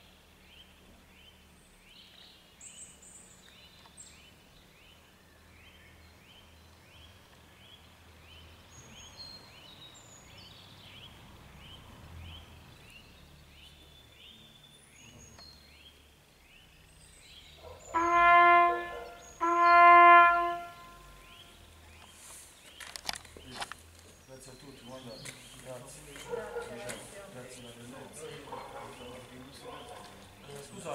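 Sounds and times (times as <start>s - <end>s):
trumpet held notes: 17.9s - 21.2s.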